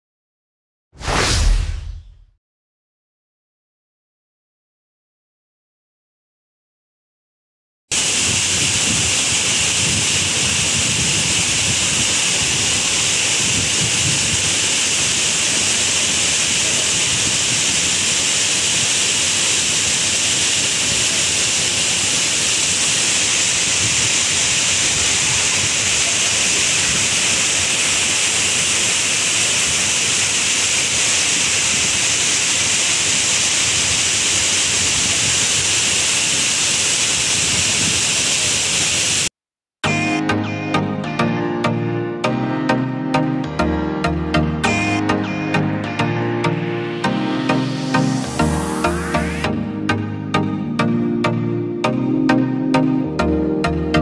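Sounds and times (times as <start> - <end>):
waterfall rushing over rocks: 7.9 - 39.3, 47.4 - 49.4.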